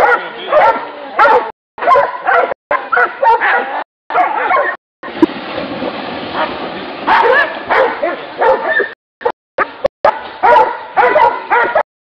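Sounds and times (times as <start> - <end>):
dogs barking and yelping: 0.0 - 4.8, 6.4 - 9.4, 10.1 - 11.9.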